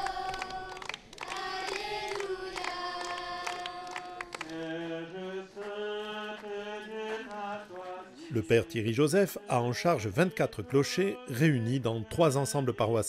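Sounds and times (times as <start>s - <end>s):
handclaps: 0.0s - 8.0s
children singing in unison: 0.0s - 8.8s.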